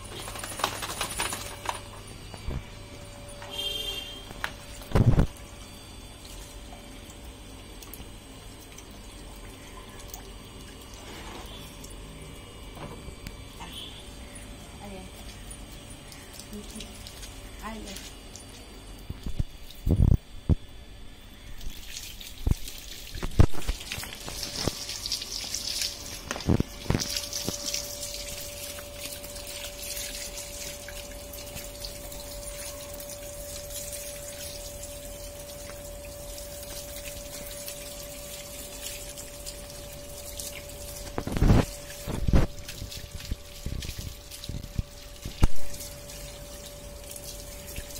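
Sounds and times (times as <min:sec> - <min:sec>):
tap water splashing: 0:21.6 - 0:32.2, 0:35.5 - 0:35.9, 0:38.8 - 0:47.9.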